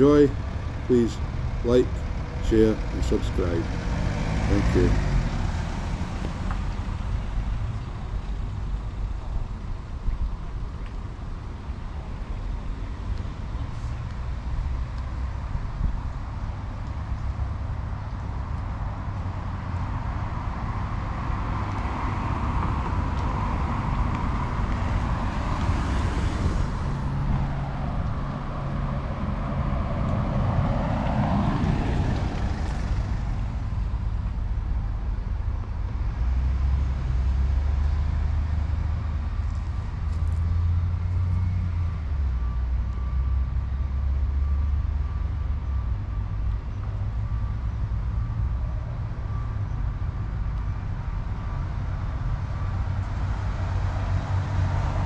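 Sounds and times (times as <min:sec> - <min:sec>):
vehicle passing by: 0:00.0 - 0:08.4, 0:20.4 - 0:34.7, 0:52.6 - 0:55.0
road traffic rumble: 0:00.0 - 0:55.0.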